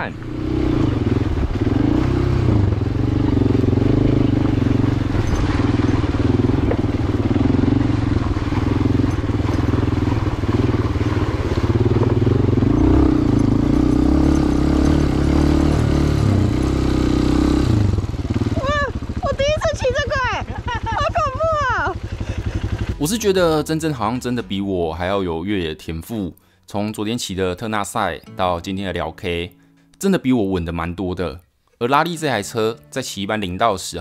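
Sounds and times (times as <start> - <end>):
dirt bike engine at low revs: 0.0 - 23.6.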